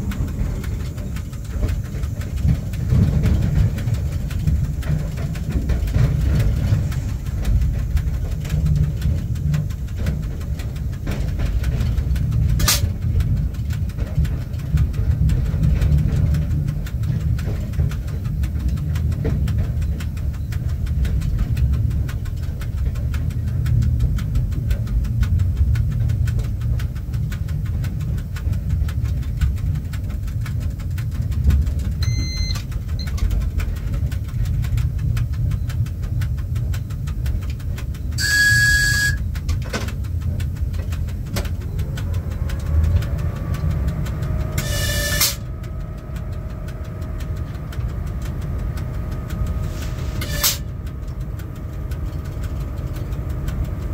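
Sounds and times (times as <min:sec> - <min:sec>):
locomotive cab rumble: 0:00.0 - 0:53.9
sharp click: 0:12.6 - 0:12.9, 0:44.5 - 0:46.0, 0:49.2 - 0:51.2.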